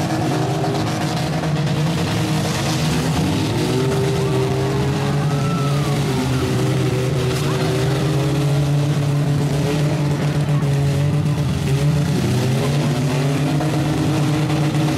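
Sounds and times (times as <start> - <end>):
truck engines revving: 0.0 - 14.9.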